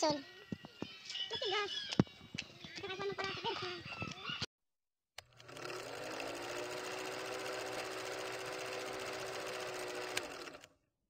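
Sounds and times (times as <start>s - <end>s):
film projector rattling: 5.2s - 10.7s.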